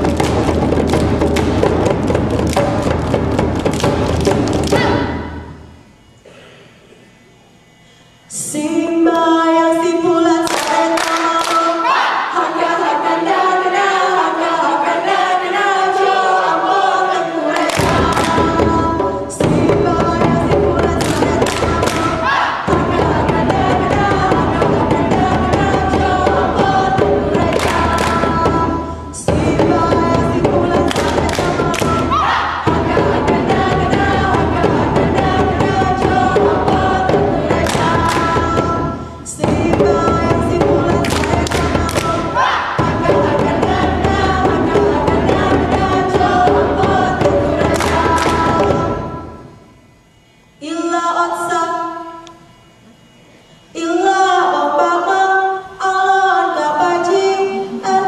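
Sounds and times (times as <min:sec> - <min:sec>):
hand drums: 0:00.0 - 0:05.2, 0:17.7 - 0:49.2
group chanting in unison: 0:04.6 - 0:05.5, 0:10.4 - 0:49.3
fast hand clapping: 0:10.4 - 0:11.6, 0:21.0 - 0:22.1, 0:41.0 - 0:42.2.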